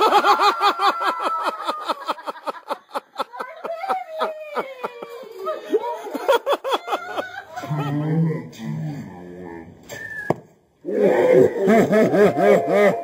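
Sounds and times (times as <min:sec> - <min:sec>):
person laughing hard: 0:11.2 - 0:13.0.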